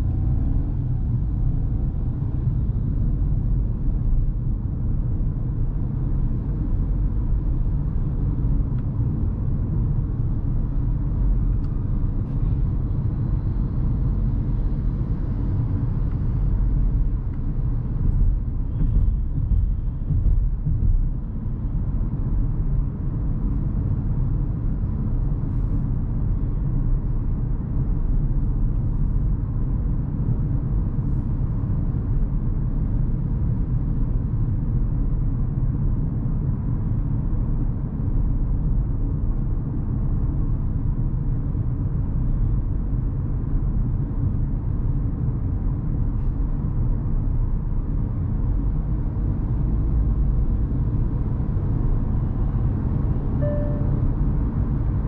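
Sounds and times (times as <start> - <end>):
engine and tyre rumble in cabin: 0.0 - 55.0.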